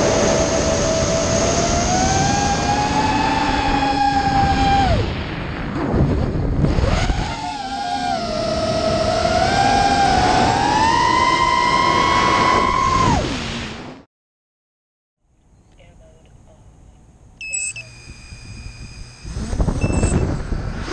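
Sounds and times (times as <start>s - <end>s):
drone motors whining: 0.0s - 5.0s, 6.7s - 13.3s, 17.4s - 20.9s.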